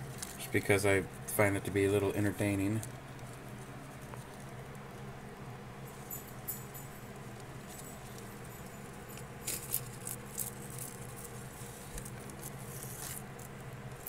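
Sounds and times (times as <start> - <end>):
steady low hum: 0.0 - 14.0
plastic bag crinkling: 7.1 - 14.0.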